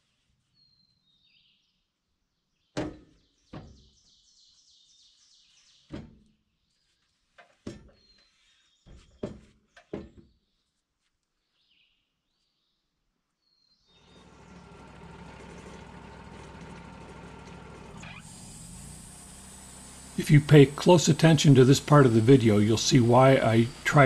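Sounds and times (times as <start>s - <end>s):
hollow wooden thunks: 2.8s - 4.0s, 5.9s - 6.3s, 7.4s - 8.0s, 8.9s - 10.4s
birds chirping: 13.5s - 24.0s.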